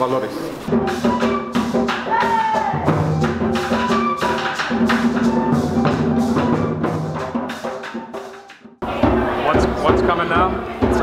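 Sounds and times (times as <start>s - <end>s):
held flute notes: 0.7s - 8.8s
maracas shaking: 0.7s - 9.4s
hand drums beating: 0.7s - 11.0s.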